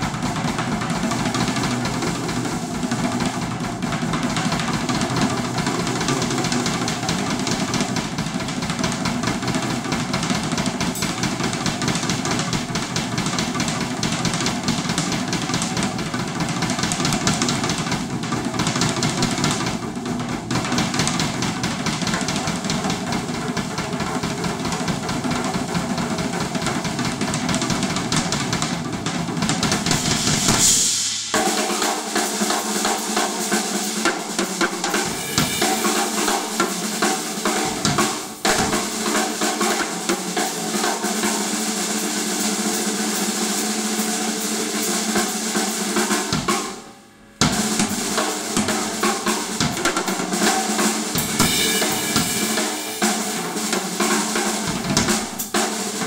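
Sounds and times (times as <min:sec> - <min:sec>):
drum kit playing: 0:00.0 - 0:56.0
loud cymbal crash: 0:09.8 - 0:21.2, 0:27.6 - 0:56.0
ringing cymbals: 0:10.8 - 0:12.3, 0:47.0 - 0:54.3.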